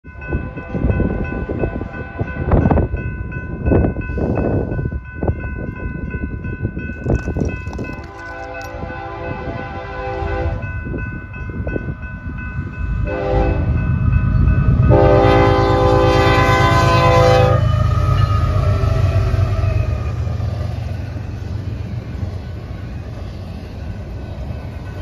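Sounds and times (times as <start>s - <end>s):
freight train rumbling past: 0.0s - 25.0s
train air horn blasts: 8.5s - 10.7s, 13.0s - 13.8s, 14.9s - 19.3s.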